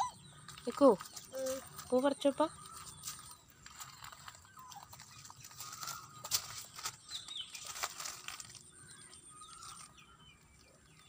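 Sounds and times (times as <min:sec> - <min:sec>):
faint bird calls: 0:00.0 - 0:11.0
vine leaves rustling and snapping: 0:02.7 - 0:10.0.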